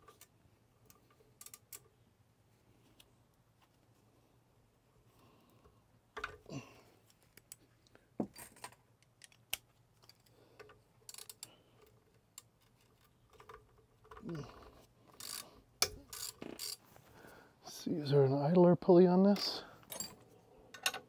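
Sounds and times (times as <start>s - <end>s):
ratchet wrench clicking: 15.2s - 16.8s
metal tools clinking: 19.4s - 21.0s.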